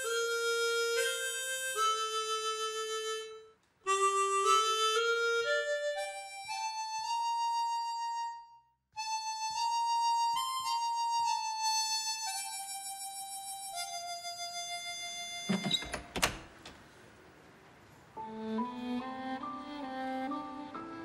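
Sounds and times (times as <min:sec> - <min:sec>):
harmonica slow melody: 0:00.0 - 0:15.8, 0:18.2 - 0:21.0.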